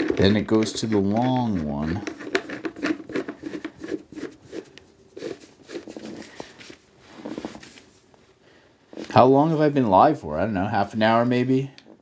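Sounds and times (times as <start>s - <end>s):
carpeted parts scraping and rustling: 0.0s - 10.0s.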